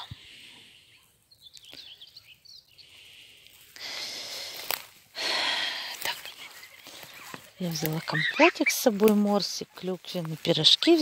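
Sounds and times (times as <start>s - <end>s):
birds singing: 0.0s - 3.4s, 5.9s - 11.0s
rustling noise: 5.9s - 11.0s.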